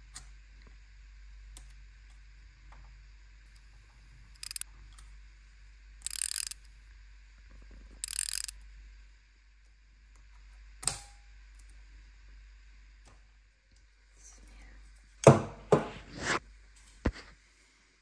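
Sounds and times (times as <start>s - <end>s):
hinged joints ratcheting: 4.4s - 4.6s, 6.1s - 6.6s, 8.0s - 8.5s.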